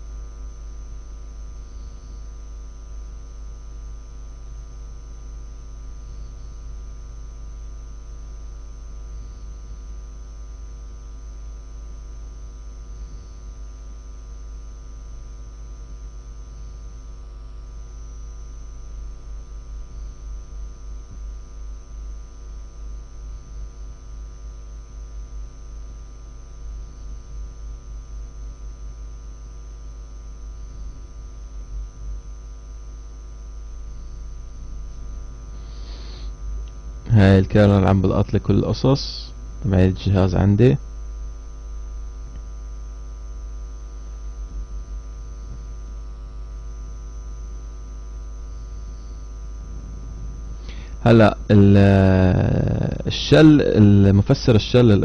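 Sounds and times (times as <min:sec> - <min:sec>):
electrical mains hum: 0:00.0 - 0:55.0
recording hiss: 0:35.5 - 0:36.3.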